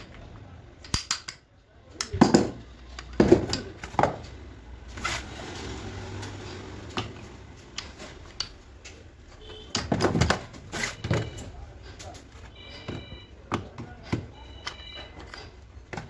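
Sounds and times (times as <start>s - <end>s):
metal engine parts clinking: 0.0s - 4.5s.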